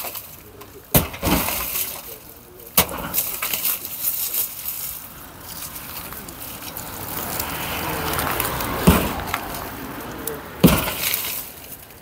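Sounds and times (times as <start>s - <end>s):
broken pieces falling: 0.0s - 7.4s, 8.0s - 12.0s
sledgehammer striking pillar: 0.9s - 2.1s, 2.7s - 3.6s, 8.8s - 9.3s, 10.6s - 11.4s.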